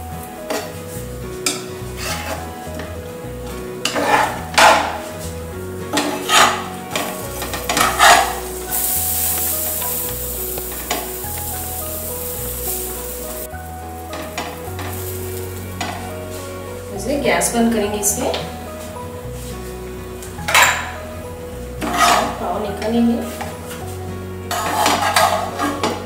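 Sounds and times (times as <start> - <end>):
frying sizzle: 0.0 - 26.0
soft background music: 0.0 - 26.0
metal spatula scraping pan: 1.4 - 2.6, 3.8 - 13.5, 14.1 - 16.6, 20.5 - 21.0, 21.8 - 26.0.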